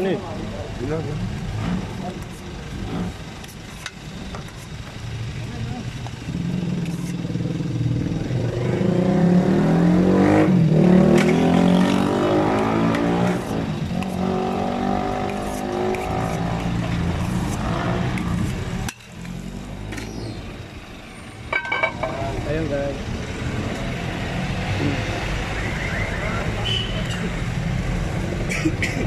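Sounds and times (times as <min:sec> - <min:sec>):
vehicle engine running: 0:00.0 - 0:23.8.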